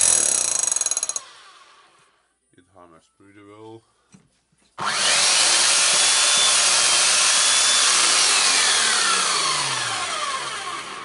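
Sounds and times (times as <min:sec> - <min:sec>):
hammer drill running: 0:00.0 - 0:01.7, 0:04.8 - 0:11.0
motor running down with falling whine: 0:04.8 - 0:11.0.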